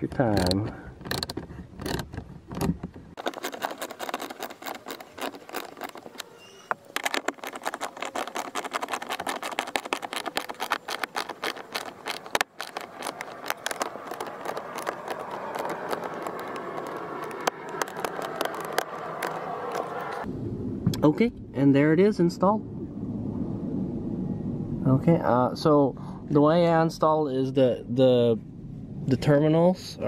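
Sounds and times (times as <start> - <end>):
hand ratchet clicking: 0.3 - 6.2.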